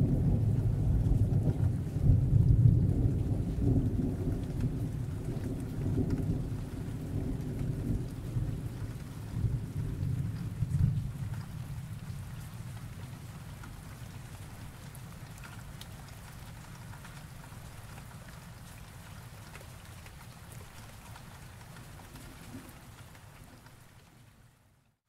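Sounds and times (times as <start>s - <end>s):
low thunder rumble: 0.0s - 13.5s
steady rain: 0.0s - 25.0s
raindrop ticks: 0.3s - 24.4s.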